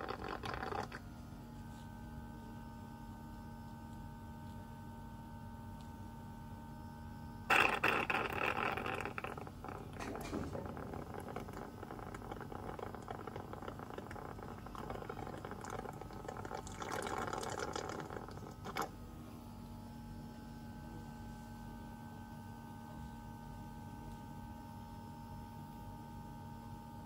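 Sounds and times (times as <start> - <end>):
honey slurping through tube: 0.0 - 1.0, 7.5 - 18.9
faint hum: 0.0 - 27.0.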